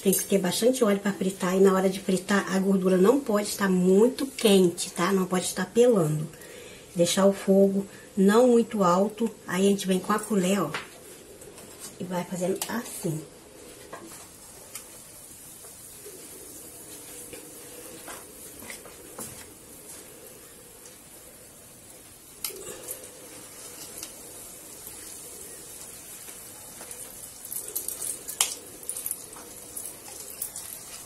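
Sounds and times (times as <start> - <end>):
batter sizzling in oil: 13.7 - 31.0.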